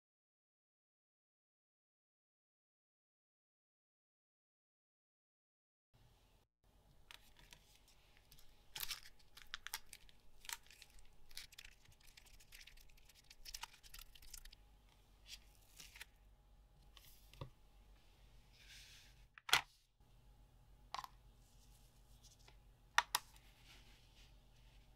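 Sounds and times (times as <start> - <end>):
tape rasping and crackling: 8.3 - 14.6.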